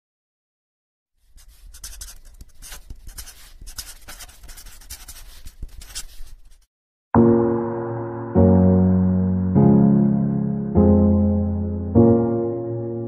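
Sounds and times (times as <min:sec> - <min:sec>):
pencil scratching on paper: 0:01.2 - 0:06.7.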